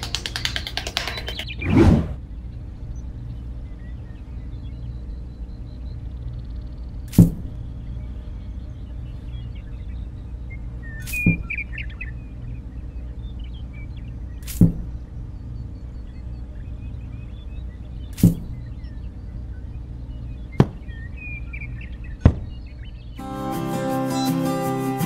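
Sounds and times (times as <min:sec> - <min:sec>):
steady low hum: 0:00.0 - 0:23.2
faint bird chirps: 0:00.3 - 0:23.2
sharp knocks: 0:07.2 - 0:07.5, 0:11.1 - 0:11.5, 0:14.5 - 0:15.0, 0:18.2 - 0:18.6, 0:20.6 - 0:20.9, 0:22.2 - 0:22.6.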